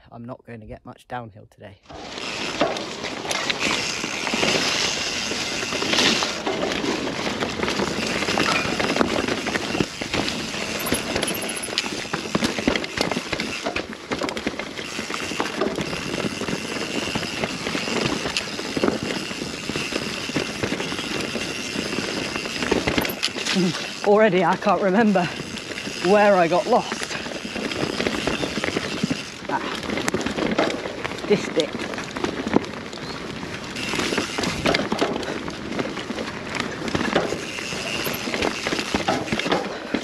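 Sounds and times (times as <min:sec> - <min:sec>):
bike rattling and clicking: 0:01.9 - 0:40.0.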